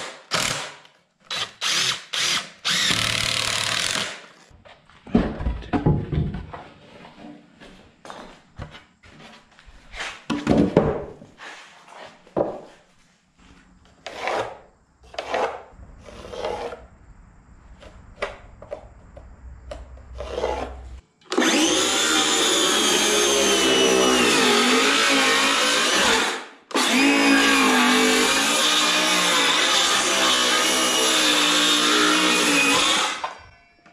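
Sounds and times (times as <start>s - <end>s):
circular saw cutting wood: 1.3s - 4.3s, 14.0s - 16.9s, 20.2s - 33.4s
boards scraping and knocking: 4.6s - 7.5s, 8.1s - 16.9s, 17.7s - 21.0s.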